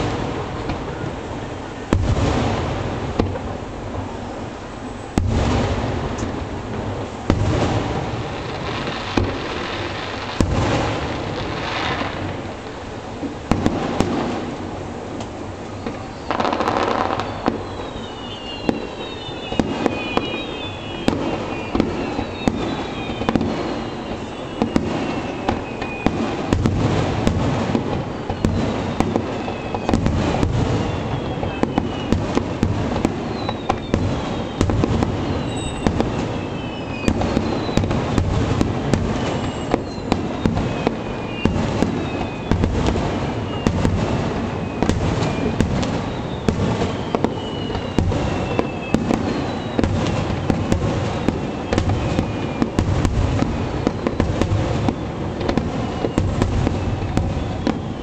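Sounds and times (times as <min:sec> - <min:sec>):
fireworks bursting with sharp cracks: 0:00.0 - 0:58.0
short falling whistles: 0:15.7 - 0:26.2, 0:28.0 - 0:30.0, 0:30.6 - 0:32.2, 0:33.2 - 0:38.2, 0:39.1 - 0:42.7, 0:43.3 - 0:43.9, 0:44.5 - 0:52.8, 0:55.8 - 0:58.0.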